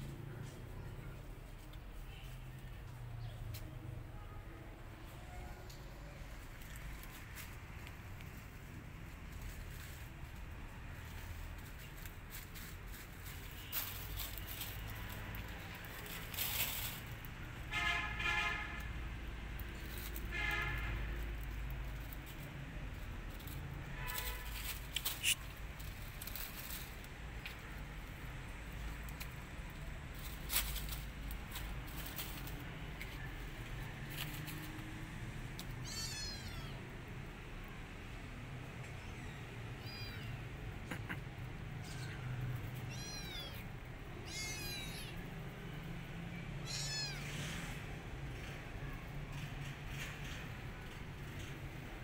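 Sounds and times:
low traffic rumble: 0:00.0 - 0:52.0
dry leaves rustling and crackling: 0:05.0 - 0:36.8, 0:41.4 - 0:46.0
distant vehicle horn: 0:17.6 - 0:19.1, 0:20.0 - 0:21.4, 0:23.8 - 0:25.4
kitten meowing: 0:35.8 - 0:36.9, 0:39.0 - 0:40.5, 0:41.8 - 0:45.2, 0:46.6 - 0:47.4.

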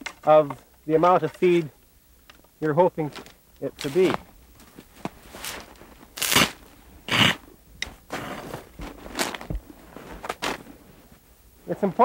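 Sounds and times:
probe crunching into dry hay: 0:03.0 - 0:07.4
boots shifting on packed snow: 0:03.8 - 0:06.5, 0:08.1 - 0:11.2.

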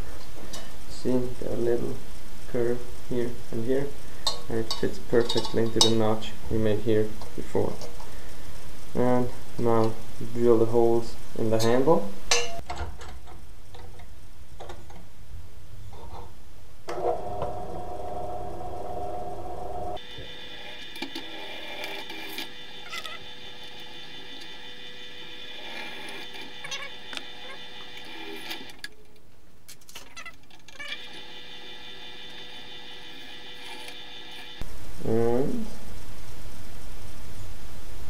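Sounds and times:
drill press running: 0:16.9 - 0:28.9, 0:30.8 - 0:34.6.

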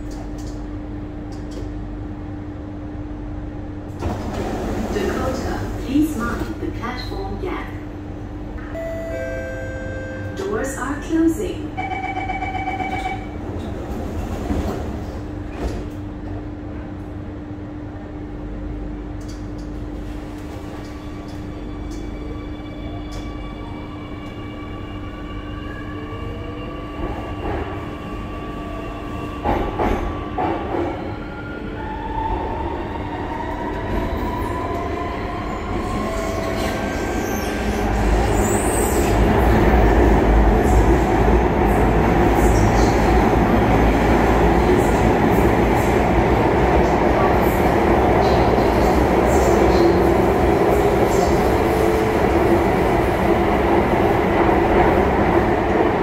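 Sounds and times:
train rumbling at speed: 0:00.0 - 0:56.0
train clunks: 0:29.4 - 0:31.0.

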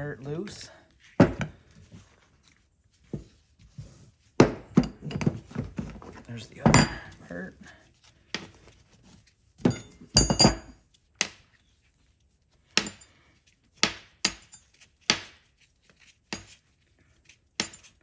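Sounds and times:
metal parts clinking on a workbench: 0:09.6 - 0:10.8.

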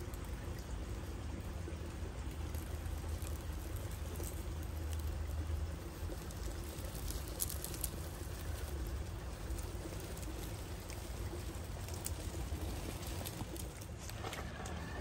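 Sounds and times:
leaves crackling: 0:00.0 - 0:15.0
stream water running: 0:00.0 - 0:15.0
toy car rumbling over dirt: 0:06.0 - 0:15.0.

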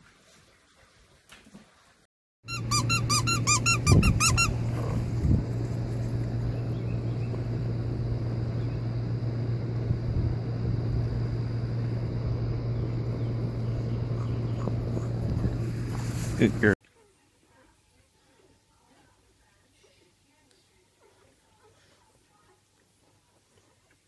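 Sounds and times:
rapid high squeaks: 0:02.5 - 0:04.8
steady low hum: 0:02.5 - 0:16.8.

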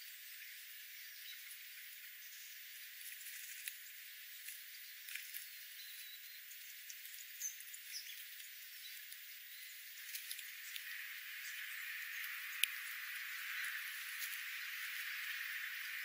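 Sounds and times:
steady high hiss: 0:00.0 - 0:16.0
birds pecking and scratching: 0:02.8 - 0:16.0.

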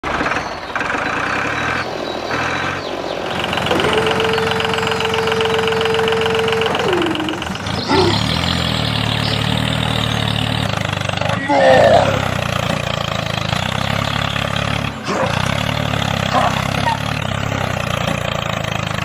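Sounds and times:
tractor engine running: 0:00.0 - 0:19.0
heavy low chugging: 0:00.1 - 0:19.0
held sliding tone: 0:03.6 - 0:09.4.

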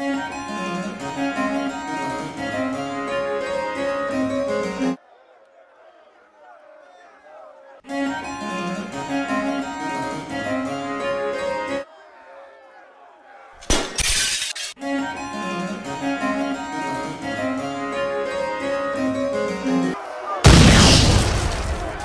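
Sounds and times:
harpsichord music: 0:00.4 - 0:05.0, 0:15.2 - 0:20.0
loud crash of noise: 0:20.4 - 0:22.0.

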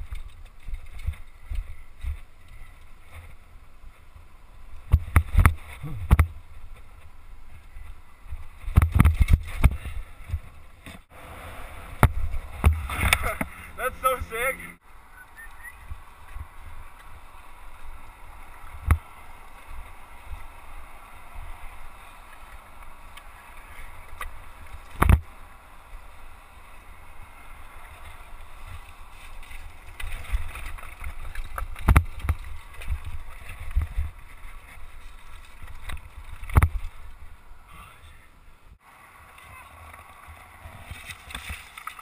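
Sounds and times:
mountain bike rattling over rocks: 0:00.0 - 0:04.2, 0:04.8 - 0:11.1, 0:15.9 - 0:37.5, 0:39.4 - 0:42.0
low rumble of bike shaking: 0:00.0 - 0:11.1, 0:15.8 - 0:37.6
bike knocking on rocks: 0:04.9 - 0:07.1, 0:08.3 - 0:11.1, 0:29.5 - 0:37.1.

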